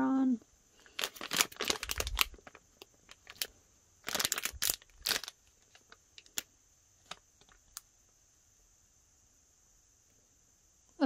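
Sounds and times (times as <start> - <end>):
cellophane bag crinkling: 0.8 - 7.8.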